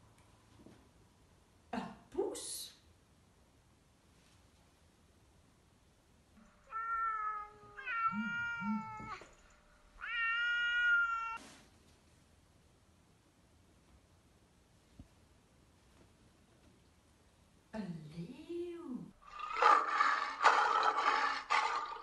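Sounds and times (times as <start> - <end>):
cat meowing: 6.6 - 9.3, 10.0 - 11.4.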